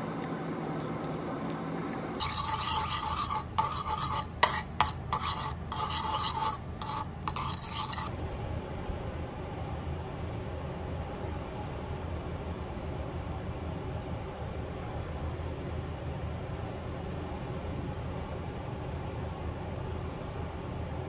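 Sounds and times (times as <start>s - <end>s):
metal spoon scraping a bowl: 2.2s - 8.1s.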